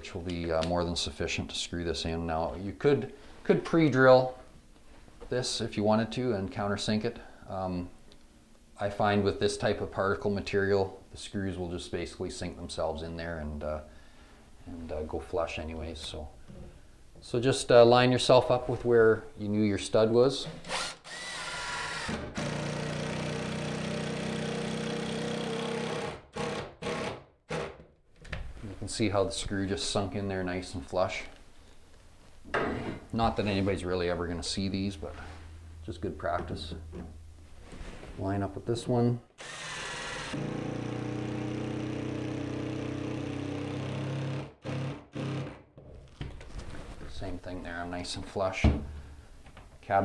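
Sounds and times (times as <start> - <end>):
cordless drill driving screw: 20.6 - 23.4, 39.4 - 41.4.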